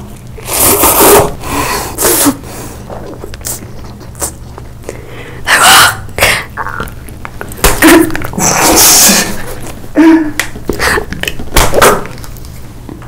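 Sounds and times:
breathy mouth sounds: 0:00.3 - 0:05.4
person slurping noodles: 0:00.4 - 0:04.5, 0:08.4 - 0:09.6.

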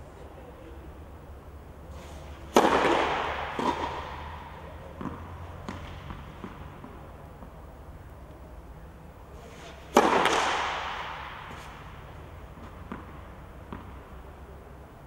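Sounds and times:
tennis racket hitting ball: 0:02.3 - 0:07.6, 0:09.6 - 0:14.1.

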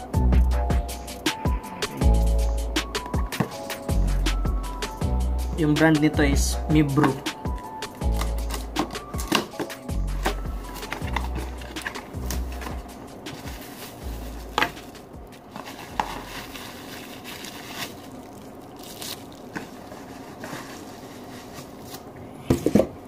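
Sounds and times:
cardboard scraping: 0:08.2 - 0:18.1, 0:19.5 - 0:22.1
plastic crinkling: 0:10.3 - 0:22.1.

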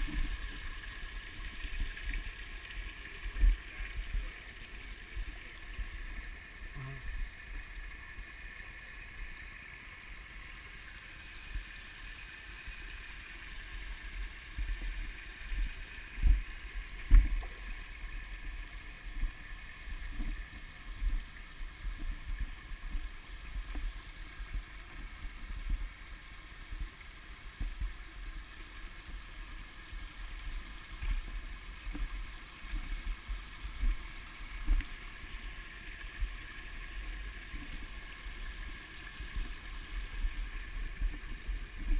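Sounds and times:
stream trickling over rocks: 0:00.0 - 0:41.9
low thumps on microphone: 0:16.2 - 0:17.6.

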